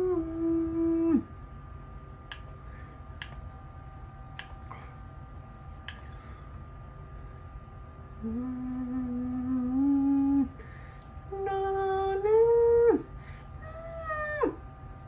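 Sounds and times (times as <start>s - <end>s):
faint steady hum: 0.0s - 15.0s
cartoon woman's voice holding vowels: 11.3s - 13.0s.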